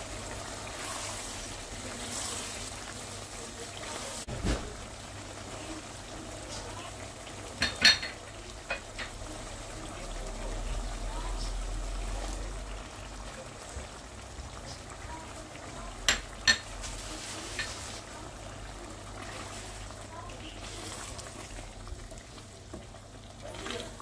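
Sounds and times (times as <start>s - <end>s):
gravy simmering with faint sizzle: 0.0s - 24.0s
utensils clinking against pot: 7.6s - 9.1s, 16.1s - 16.9s.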